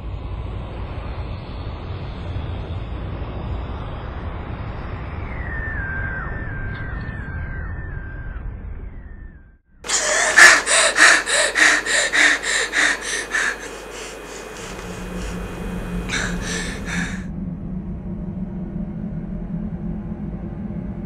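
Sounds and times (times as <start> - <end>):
low steady hum: 9.9 - 17.2
woman panting heavily: 9.9 - 17.3.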